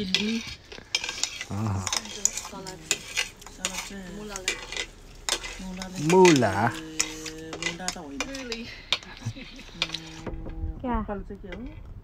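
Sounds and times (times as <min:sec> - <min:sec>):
cutlery clinking on ceramic plates: 0:00.0 - 0:10.2
low voices talking: 0:01.5 - 0:03.0.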